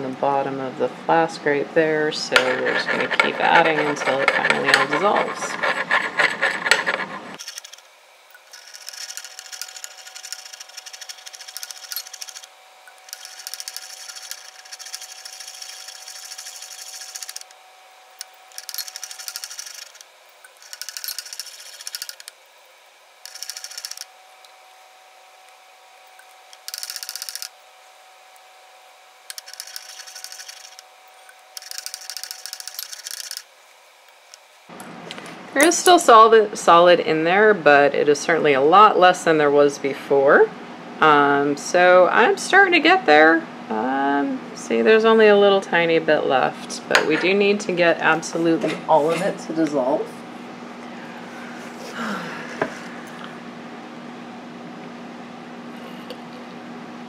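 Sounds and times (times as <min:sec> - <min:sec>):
glass flask grinding on hot plate: 0:02.4 - 0:07.8, 0:08.4 - 0:17.5, 0:18.5 - 0:22.3, 0:29.3 - 0:30.8.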